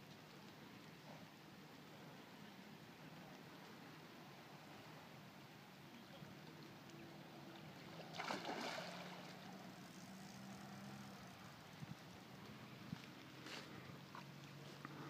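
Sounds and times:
fish splashing at water surface: 7.9s - 10.7s.

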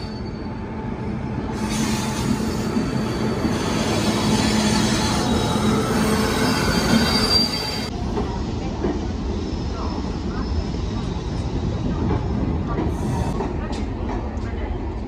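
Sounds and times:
train coaches rumbling: 0.0s - 15.0s
high wheel squeal: 1.6s - 7.9s.

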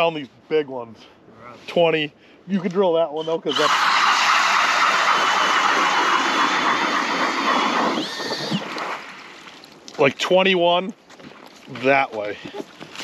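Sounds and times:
ice auger grinding whine: 3.4s - 8.9s.

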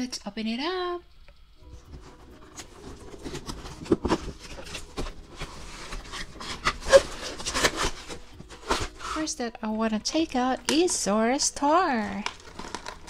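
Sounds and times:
cardboard and plastic crinkling: 1.8s - 9.3s, 12.0s - 13.0s.

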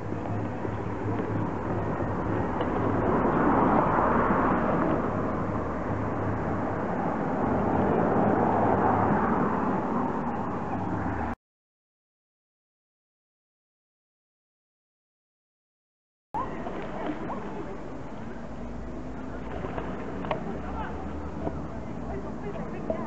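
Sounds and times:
street traffic road noise: 0.0s - 11.4s, 16.4s - 23.0s.

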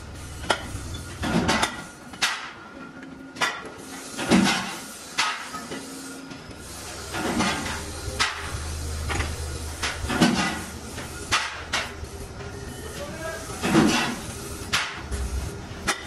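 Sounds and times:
low machine hum: 0.0s - 2.2s, 6.2s - 16.0s
metal clanks and knocks: 0.4s - 2.6s, 7.1s - 10.7s.

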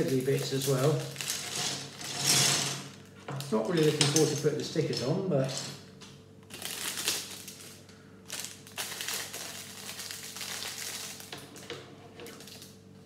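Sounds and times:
plastic bag crinkling: 0.0s - 2.2s, 6.4s - 11.4s, 12.3s - 12.8s.

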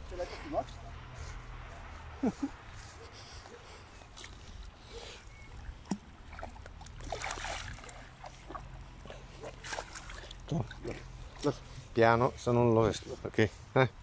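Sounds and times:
fish thrashing in water: 5.5s - 11.4s
splashing: 5.5s - 11.6s.

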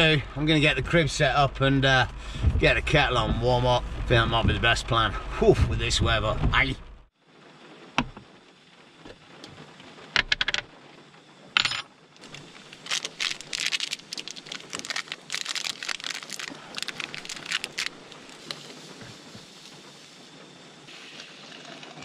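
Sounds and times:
small hard objects clinking: 11.6s - 18.5s.

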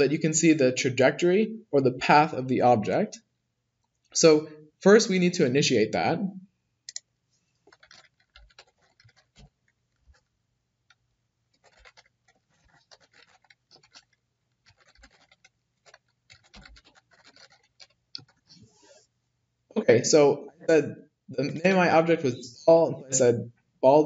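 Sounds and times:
keyboard typing: 7.7s - 10.3s, 10.9s - 18.6s.

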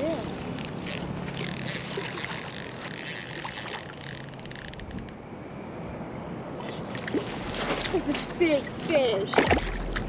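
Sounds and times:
fishing reel drag buzzing: 0.6s - 5.2s.

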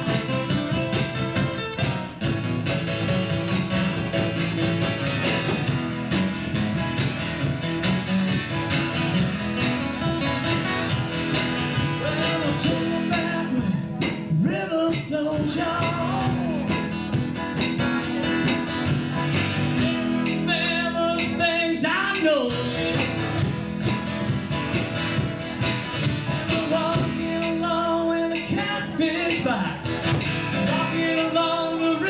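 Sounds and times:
acoustic guitar strumming: 0.0s - 32.0s
man singing: 11.7s - 18.8s, 19.5s - 23.3s, 26.2s - 32.0s.

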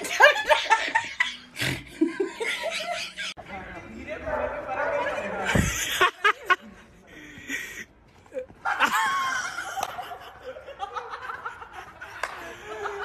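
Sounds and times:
young people laughing: 0.0s - 3.4s, 5.0s - 13.0s.

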